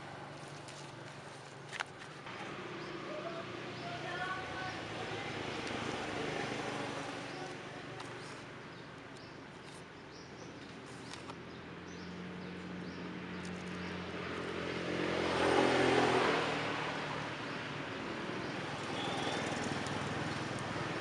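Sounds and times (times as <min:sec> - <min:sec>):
vehicle engine passing by: 0:02.3 - 0:07.8, 0:11.5 - 0:21.0.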